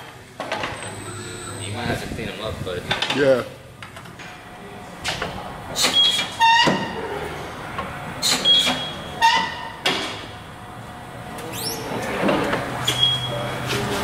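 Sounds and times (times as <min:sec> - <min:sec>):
quick rising squeak: 0:11.5 - 0:11.9, 0:12.8 - 0:13.4.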